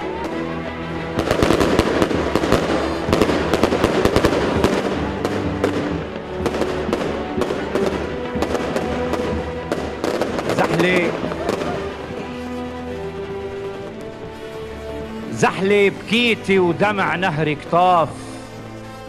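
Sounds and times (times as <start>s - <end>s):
dense crackle of sharp bangs: 1.1s - 15.1s.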